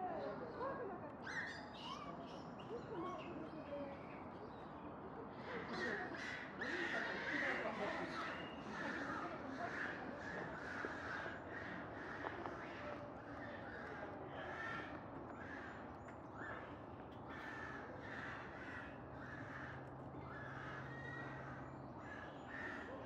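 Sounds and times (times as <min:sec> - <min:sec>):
crows cawing: 0:05.8 - 0:23.0.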